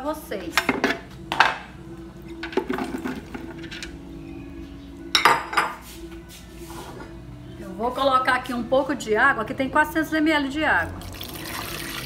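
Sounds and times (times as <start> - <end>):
glass bowl clattering on counter: 5.1 - 5.8.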